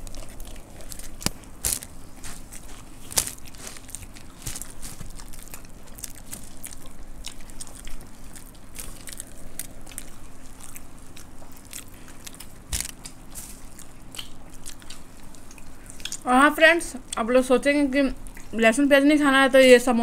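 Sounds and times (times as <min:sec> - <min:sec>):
dry puffed rice crackling: 0:00.0 - 0:13.7
crunchy chewing: 0:00.0 - 0:16.3
faint hum: 0:00.0 - 0:20.0.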